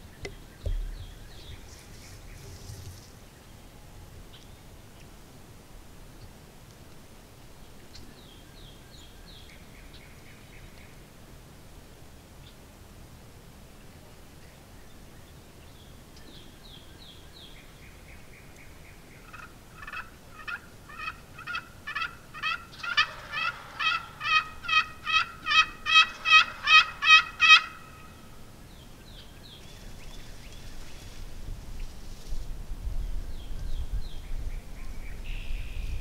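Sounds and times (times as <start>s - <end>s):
wild turkey yelping: 19.2s - 28.2s.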